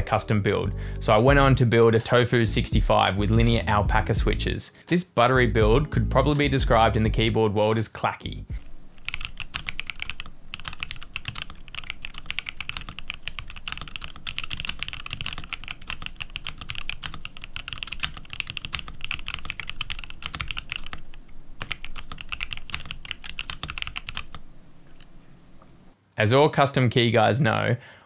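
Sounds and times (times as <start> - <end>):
fast typing on mechanical keyboard: 9.0 - 24.4.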